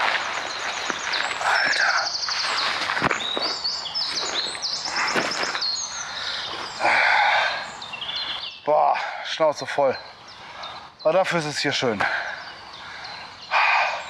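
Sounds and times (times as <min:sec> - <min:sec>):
backpack and clothing rustling: 0:00.0 - 0:05.7
songbirds singing: 0:00.0 - 0:14.0.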